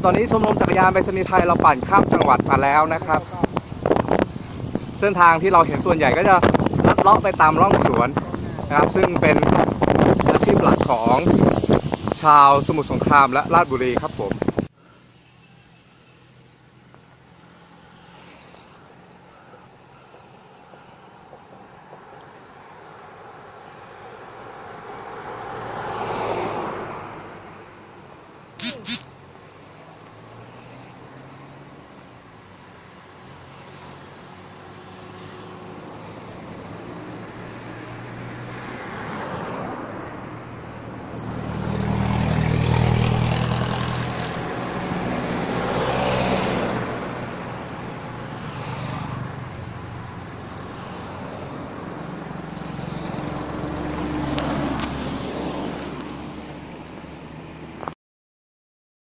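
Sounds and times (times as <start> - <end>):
road traffic passing: 0.0 - 57.9.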